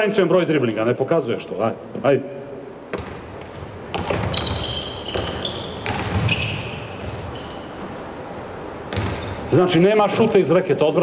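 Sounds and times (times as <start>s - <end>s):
basketball bouncing on court floor: 2.9s - 8.0s, 8.8s - 9.5s
sneakers squeaking: 2.9s - 9.6s.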